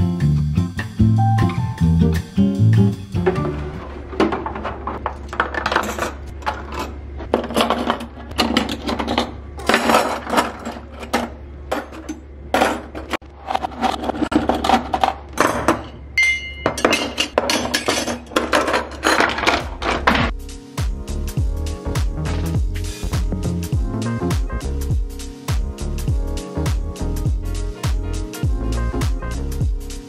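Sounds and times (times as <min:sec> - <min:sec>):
metal cutlery clinking: 0:04.2 - 0:20.3.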